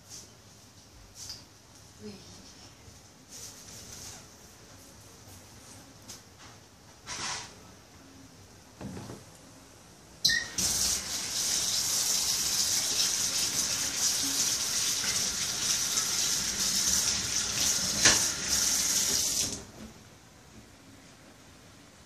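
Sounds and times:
water running from a tap: 10.5 - 19.7.

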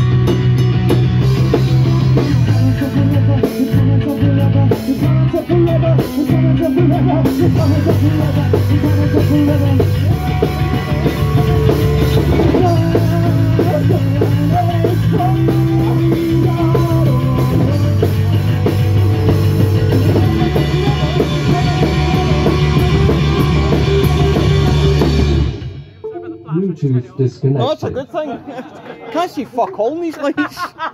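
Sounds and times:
punk rock band playing: 0.0 - 27.8
man singing: 1.4 - 25.5.

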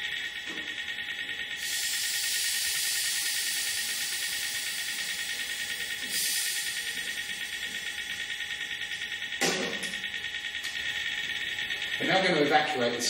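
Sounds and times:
pressurised gas hissing from hose: 1.6 - 5.3, 6.0 - 7.1.

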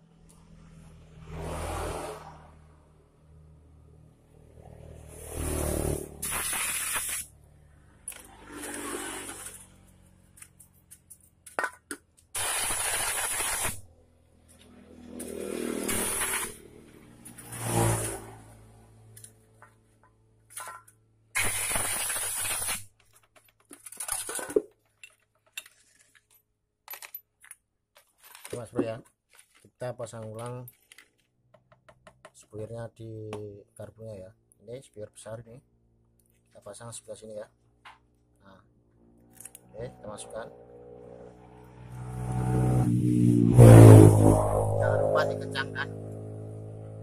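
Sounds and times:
short hissing sprays: 6.2 - 7.3
small metal parts clicking: 21.7 - 28.7.

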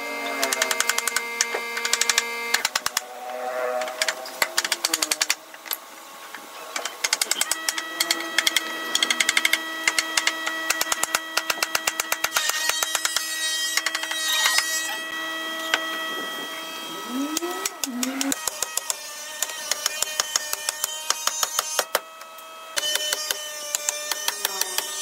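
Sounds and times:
steady tones: 0.2 - 11.7.

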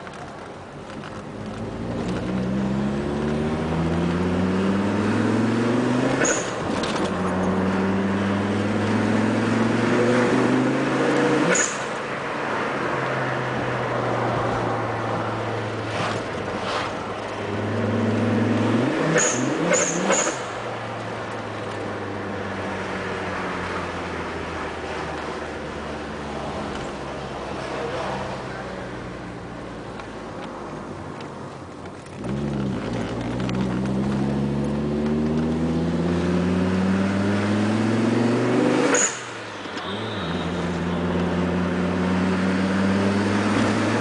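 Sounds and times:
turbocharged car engine revving: 1.6 - 6.6, 17.4 - 20.5, 32.2 - 39.3, 39.9 - 44.0.

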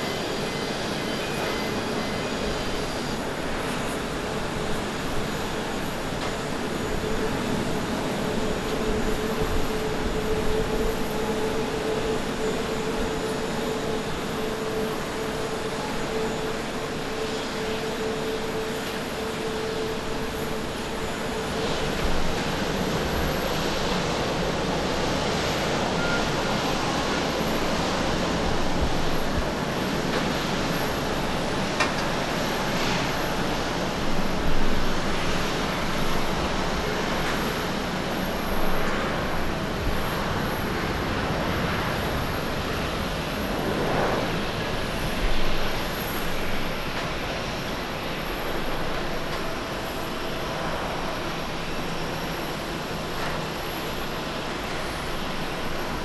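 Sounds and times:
jet airliner engines roaring: 0.0 - 56.0.

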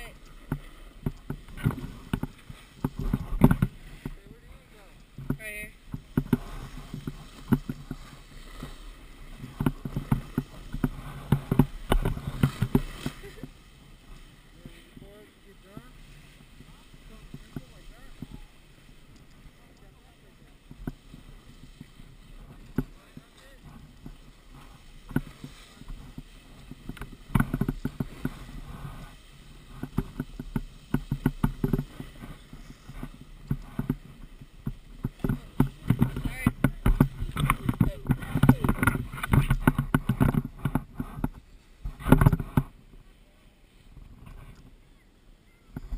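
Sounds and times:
snowboard scraping on snow: 6.0 - 18.3, 21.0 - 42.9.

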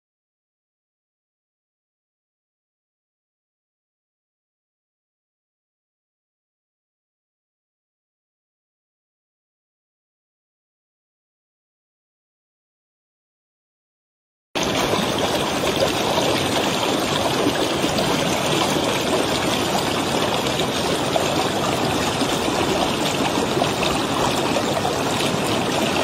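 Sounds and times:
stream water flowing: 14.6 - 26.0.

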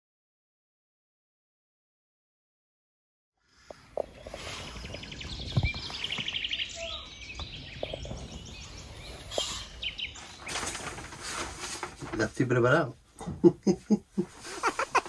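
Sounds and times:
birds singing with trills: 3.4 - 11.2.

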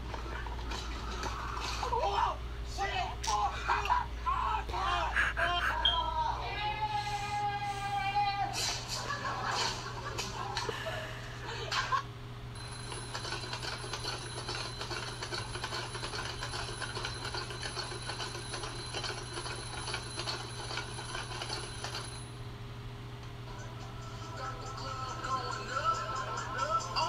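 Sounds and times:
low electrical hum: 0.0 - 27.0
bell alarm clock ringing: 12.6 - 22.3.

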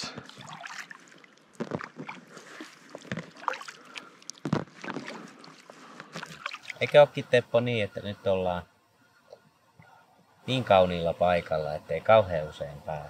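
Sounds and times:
paddle strokes in water: 0.0 - 6.8
water lapping at hull: 0.0 - 7.1.

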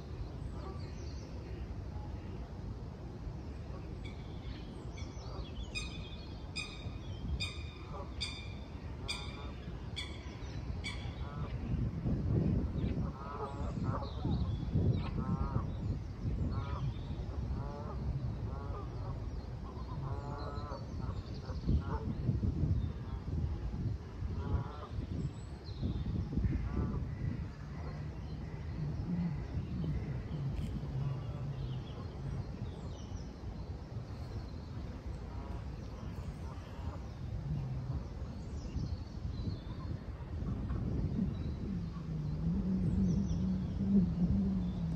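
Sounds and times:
steady low rumble: 0.0 - 44.9
low rumble: 26.5 - 33.2.

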